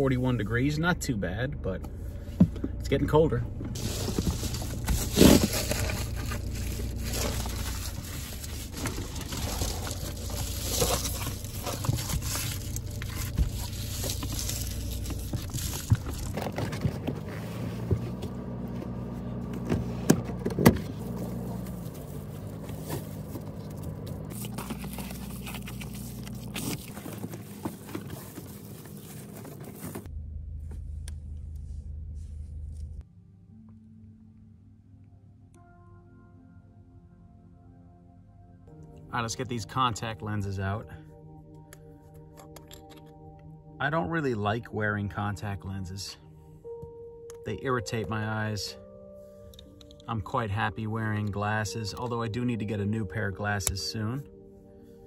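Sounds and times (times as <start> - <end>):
steady low hum: 0.3 - 33.4
rustling and scraping: 3.7 - 30.1.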